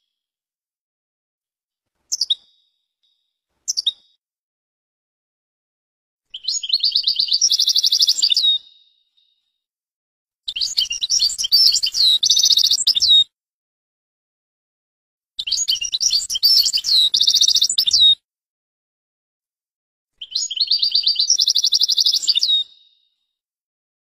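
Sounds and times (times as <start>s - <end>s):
finch singing twittering song: 2.1s - 4.2s, 6.3s - 9.4s, 10.5s - 13.2s, 15.4s - 18.2s, 20.2s - 23.1s.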